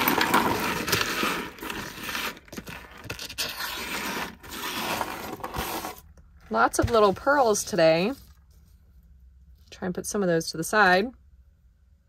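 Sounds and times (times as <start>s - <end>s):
small jewelry scraping and rattling: 0.0s - 6.0s.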